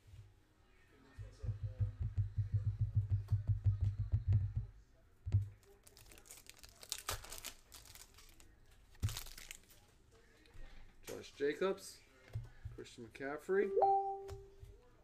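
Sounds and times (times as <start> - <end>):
foil card pack tearing and crinkling: 5.8 - 8.4, 9.0 - 9.7.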